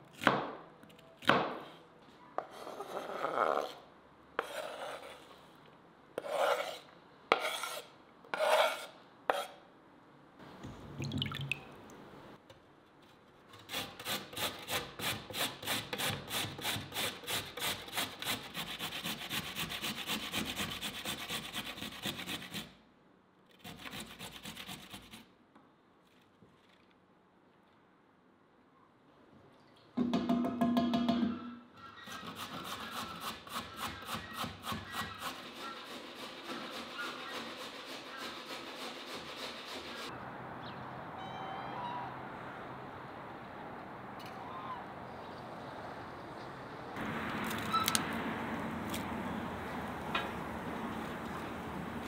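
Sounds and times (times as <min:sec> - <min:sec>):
vegetable grating on a grater: 0:32.1 - 0:40.1.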